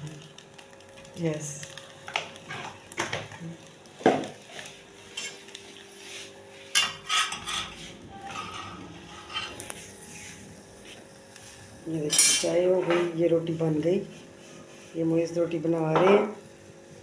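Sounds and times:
metal spoons and pots clinking: 6.8 - 9.6, 12.1 - 12.6.

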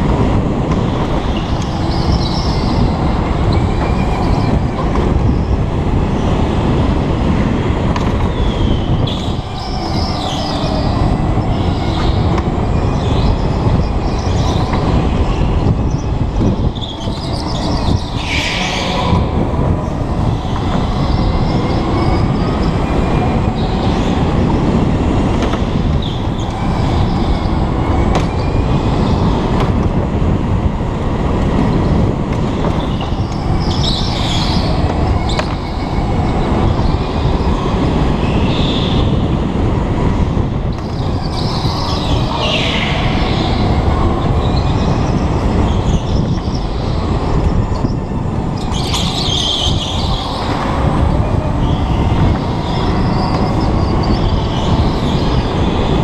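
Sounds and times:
go-kart motor and wind rush: 0.0 - 56.0.

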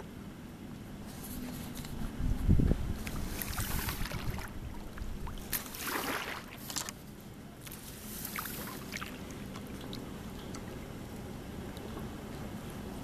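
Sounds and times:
water lapping against kayak: 1.0 - 13.0
small splashes and drips: 3.0 - 7.0, 7.6 - 12.1.

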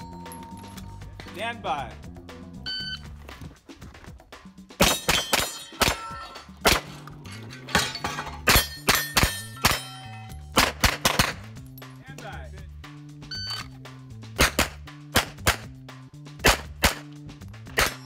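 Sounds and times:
steel targets ringing: 4.8 - 10.6
pistol shots: 10.6 - 11.5, 14.4 - 15.7, 16.4 - 18.0.

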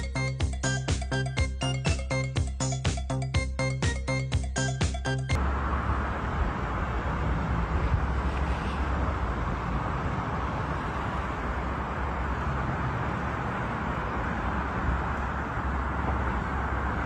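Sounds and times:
outdoor rushing noise: 5.3 - 17.0
deep uneven rumble: 5.4 - 17.0.

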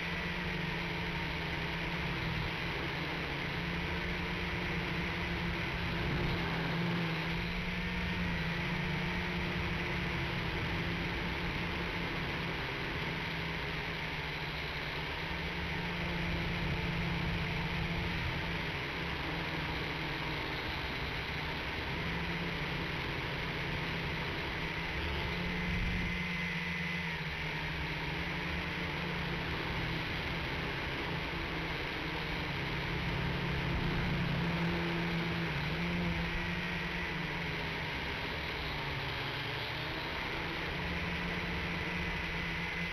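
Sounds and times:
quadcopter propellers buzzing: 0.0 - 42.9.

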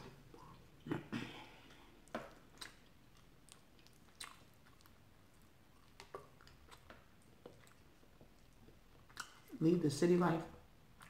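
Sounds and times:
person chewing food: 0.0 - 9.6
wet mouth clicks: 1.7 - 4.9, 5.8 - 9.4.

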